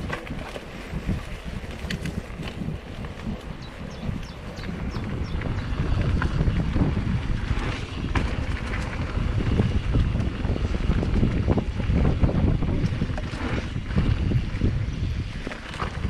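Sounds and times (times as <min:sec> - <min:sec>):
bike rattling clicks: 0:00.0 - 0:16.0
wind buffeting microphone: 0:00.0 - 0:16.0.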